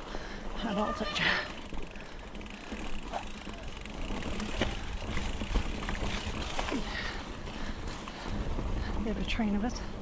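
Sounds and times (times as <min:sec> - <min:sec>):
bike tyre and drivetrain rumble: 0:00.0 - 0:10.0
sharp knocks from bike: 0:04.1 - 0:06.6.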